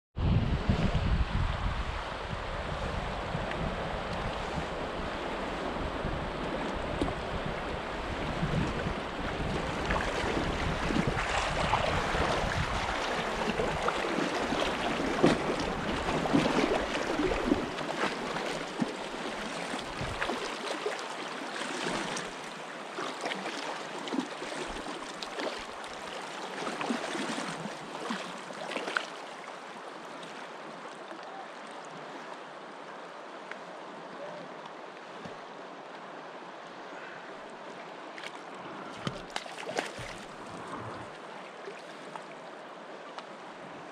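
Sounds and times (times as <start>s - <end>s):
wind rumble on microphone: 0.2s - 17.8s, 19.7s - 20.4s, 40.0s - 41.2s
river current rushing and lapping: 0.4s - 43.9s.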